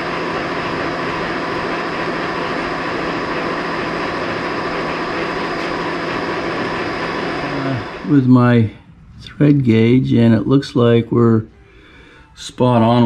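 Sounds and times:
lathe running with high whine: 0.0s - 8.7s.

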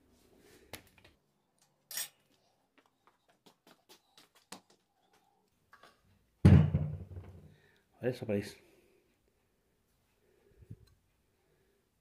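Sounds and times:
metal tools clinking on workbench: 1.9s - 2.2s
loud low-pitched thud: 6.5s - 7.3s.

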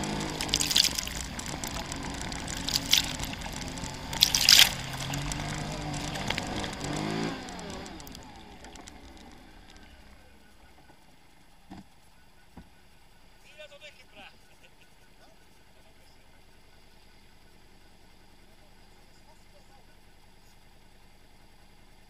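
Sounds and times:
loud splashes through water: 0.0s - 7.4s
quad bike engine running: 0.0s - 13.5s, 14.1s - 22.0s.

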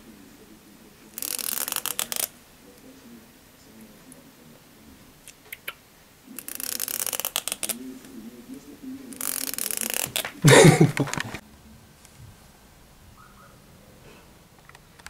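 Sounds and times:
comb teeth clicking: 1.2s - 2.3s, 6.4s - 7.8s, 9.1s - 11.4s.

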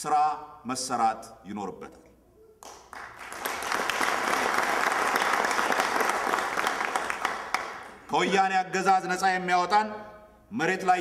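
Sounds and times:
audience applauding: 2.6s - 8.1s.

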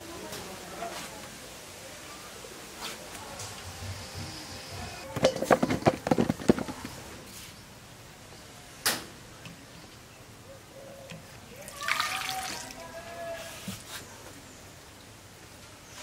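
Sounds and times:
water splashing into bowl: 11.6s - 12.8s.

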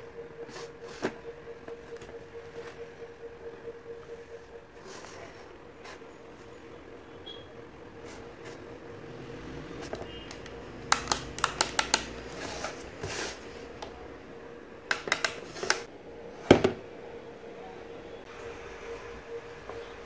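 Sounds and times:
plastic clicks and taps on wood: 10.3s - 12.2s, 14.9s - 15.8s.

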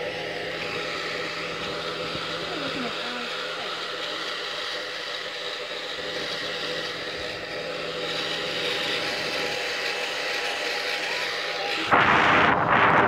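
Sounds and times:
hair dryer whirring: 0.0s - 13.0s.

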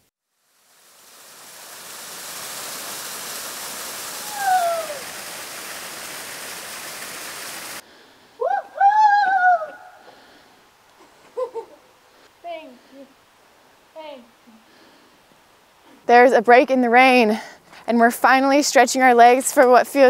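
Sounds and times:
rain hiss: 0.0s - 8.5s, 9.8s - 20.0s
person calling out: 4.2s - 5.0s.

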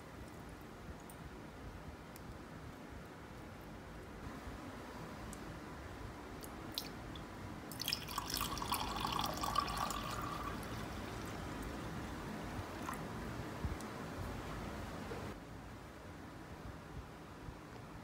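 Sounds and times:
water pouring into a mug: 7.7s - 11.8s.

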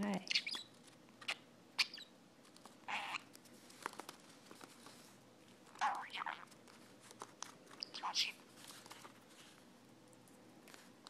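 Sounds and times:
budgie chattering softly: 0.2s - 2.1s, 2.8s - 3.3s, 5.8s - 6.6s, 7.7s - 8.4s.

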